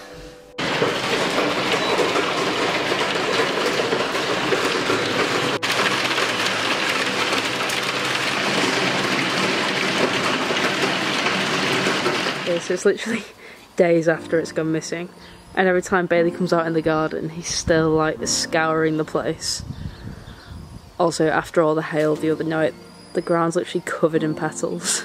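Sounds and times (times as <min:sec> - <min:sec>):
hail clattering on skylight: 0:00.6 - 0:13.0.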